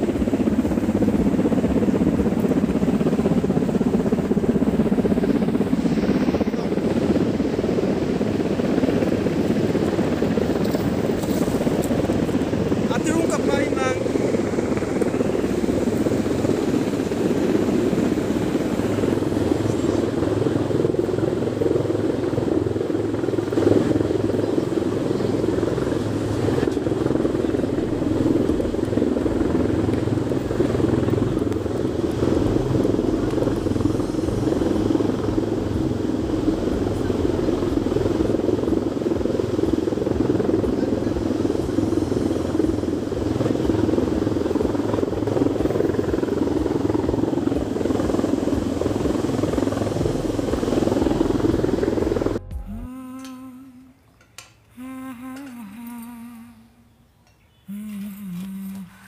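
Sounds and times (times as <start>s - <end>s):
engine drone with low throb: 14.0s - 53.9s.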